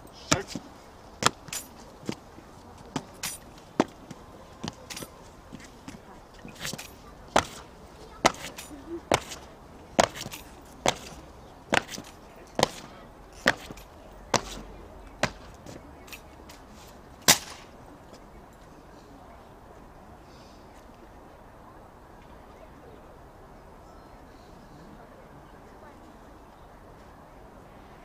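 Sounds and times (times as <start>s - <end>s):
boots stamping on stone: 0.3s - 15.8s.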